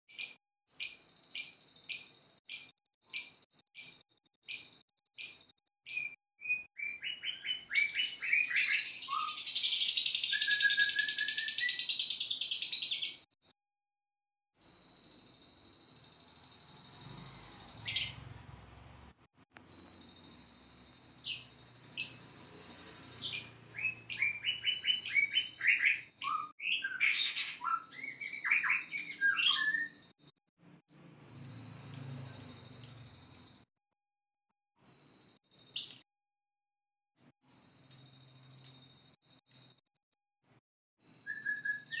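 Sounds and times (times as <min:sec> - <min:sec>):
cage birds chattering: 0:00.1 - 0:13.3, 0:14.6 - 0:19.0, 0:19.6 - 0:33.6, 0:41.0 - 0:42.0
bird whistling varied notes: 0:41.2 - 0:42.0.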